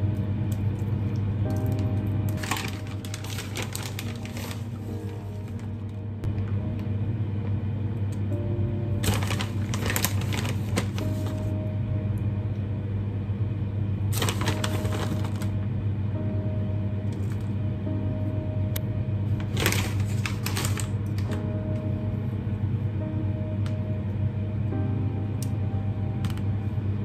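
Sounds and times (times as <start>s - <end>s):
soft background music: 0.0s - 27.0s
plastic bag crinkling: 1.5s - 5.9s, 9.0s - 11.5s, 14.1s - 15.6s, 19.4s - 21.5s.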